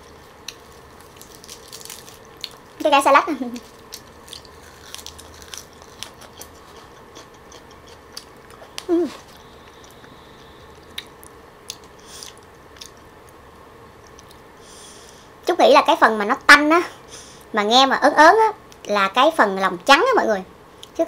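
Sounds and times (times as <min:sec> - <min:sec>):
wet chewing: 0:00.4 - 0:02.8, 0:03.5 - 0:13.1.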